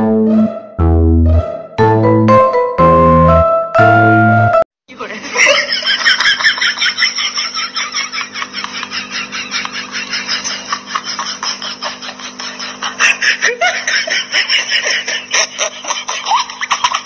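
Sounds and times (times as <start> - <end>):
person laughing in breathy bursts: 7.3 - 17.0.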